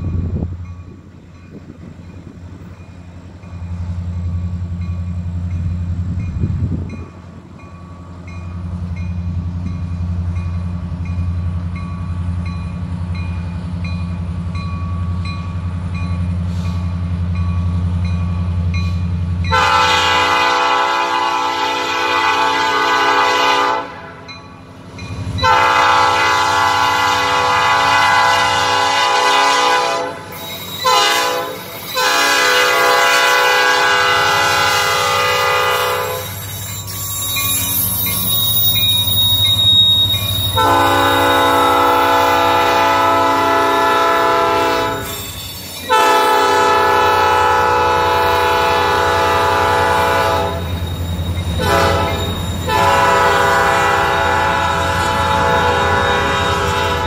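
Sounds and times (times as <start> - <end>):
freight cars rolling on rails: 0.0 - 57.0
locomotive air horn chord: 19.5 - 24.3, 25.4 - 36.4, 40.6 - 45.1, 45.9 - 50.7, 51.6 - 57.0
faint high wheel squeal: 30.2 - 32.1, 35.7 - 41.9, 44.9 - 46.0, 50.5 - 53.2.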